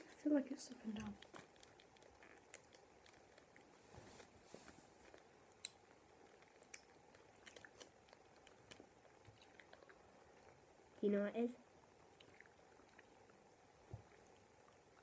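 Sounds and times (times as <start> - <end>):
chewing mouth clicks and smacks: 0.9 - 3.7, 5.0 - 10.6, 12.0 - 13.4.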